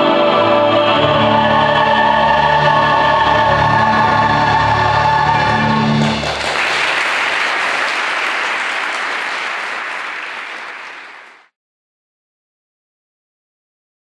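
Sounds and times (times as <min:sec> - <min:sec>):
audience applauding: 0:05.0 - 0:11.5.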